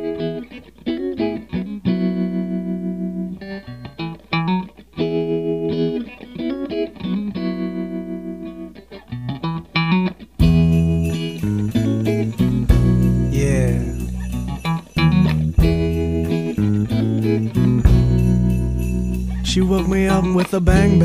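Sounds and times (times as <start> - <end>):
guitar ringing chords: 0.0 - 21.0
band with low bass: 10.4 - 21.0.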